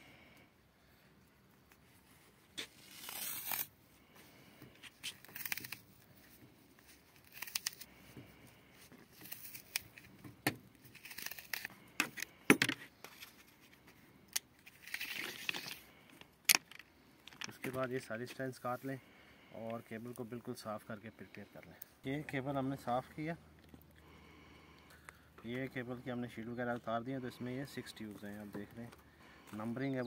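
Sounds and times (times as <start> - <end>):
cable sheath rustling and tearing: 2.1 - 4.1, 4.7 - 16.8.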